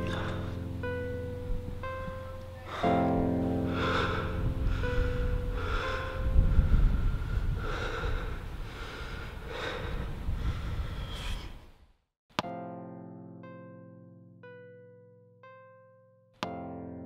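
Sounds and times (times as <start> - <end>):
person breathing heavily: 0.0 - 0.7, 2.6 - 11.6.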